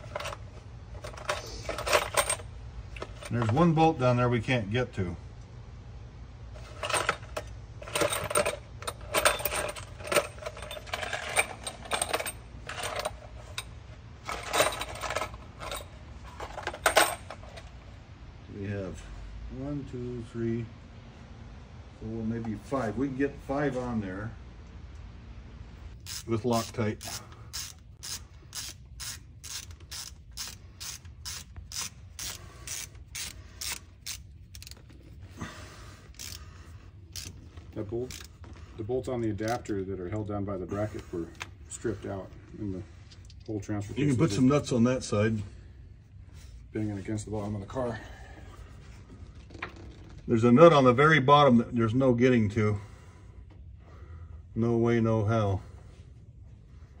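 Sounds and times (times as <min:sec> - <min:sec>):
bolts rattling in plastic box: 0:06.7 - 0:13.6, 0:14.2 - 0:15.8
ratchet wrench pawl clicking: 0:26.0 - 0:34.8, 0:36.1 - 0:36.5, 0:37.1 - 0:37.4, 0:38.0 - 0:38.4.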